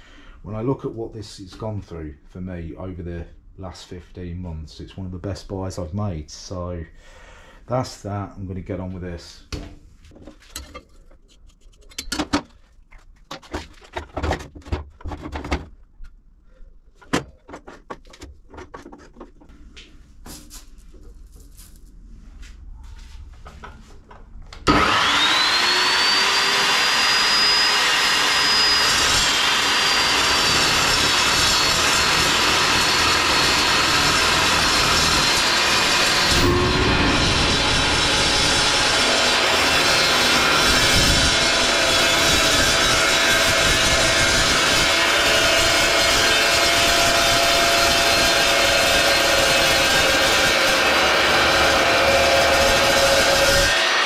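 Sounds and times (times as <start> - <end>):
chop saw cutting pipe: 24.6 - 54.0.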